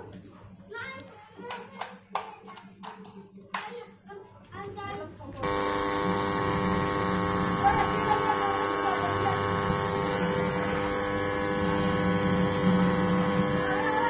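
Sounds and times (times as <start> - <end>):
washing machine motor humming: 5.4 - 14.0.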